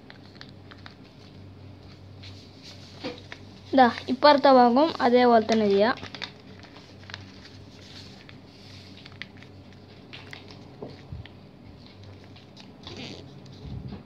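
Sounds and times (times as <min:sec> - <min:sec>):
paper rustling: 0:00.0 - 0:11.1.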